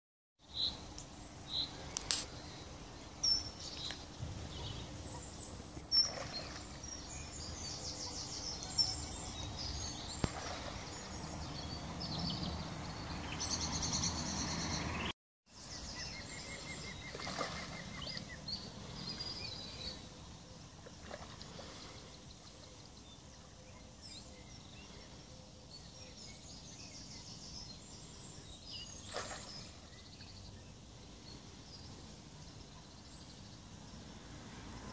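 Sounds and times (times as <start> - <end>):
birds singing: 0.4 - 34.2
fish splashing in water: 5.8 - 7.0, 10.2 - 11.5, 17.0 - 18.4, 29.0 - 29.9.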